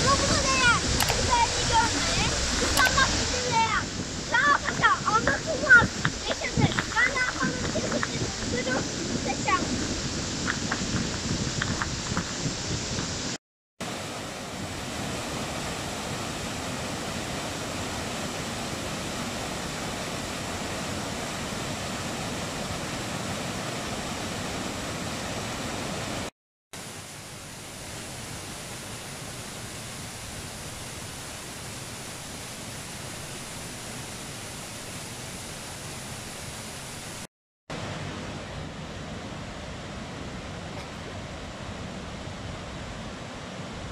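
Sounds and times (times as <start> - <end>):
waterfall rushing: 0.0 - 43.9.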